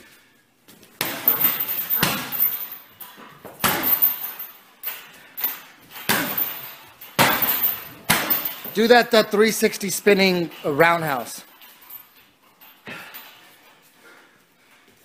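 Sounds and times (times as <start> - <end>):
kicks smacking heavy bag: 1.0 - 2.7, 3.4 - 4.3, 5.9 - 8.8.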